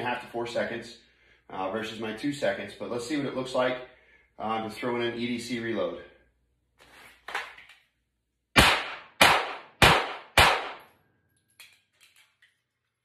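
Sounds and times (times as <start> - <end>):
pistol shots: 8.6 - 10.9
magazine dropping clatter: 10.8 - 12.8.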